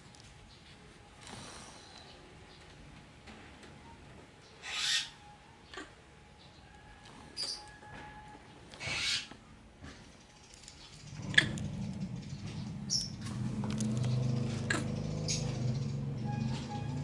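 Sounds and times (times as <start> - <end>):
baby monkey squeaking: 4.6 - 5.1.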